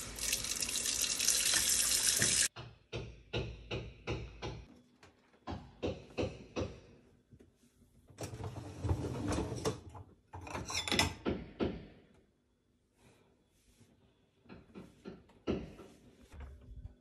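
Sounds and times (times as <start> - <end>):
dishwasher racks sliding on rails: 8.2 - 10.9.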